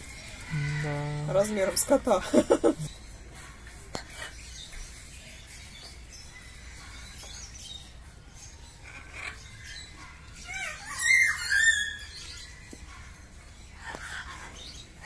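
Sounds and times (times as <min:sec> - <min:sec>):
loud cockatoo calls: 0:10.4 - 0:12.2.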